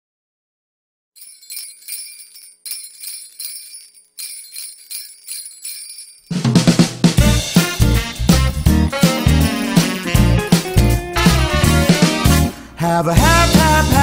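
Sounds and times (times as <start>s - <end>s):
sleigh bells shaken: 1.2s - 6.6s, 8.2s - 11.5s
band with bass and drums: 6.5s - 12.5s, 13.2s - 14.0s.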